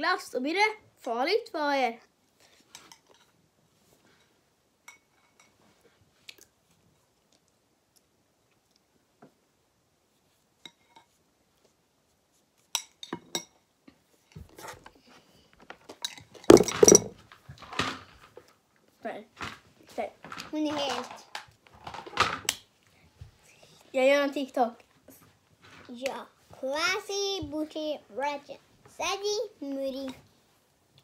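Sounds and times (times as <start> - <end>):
knocks and rubbing on sweater: 16.5 - 17.2.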